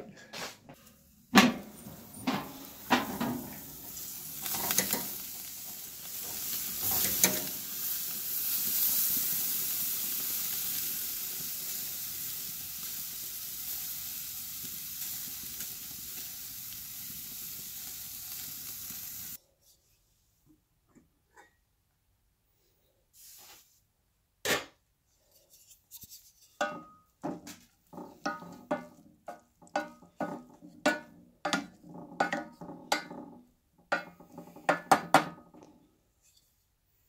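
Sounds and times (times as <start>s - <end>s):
metal clanking on grill: 1.3s - 8.0s, 27.9s - 29.0s
meat sizzling on a grill: 1.4s - 19.4s.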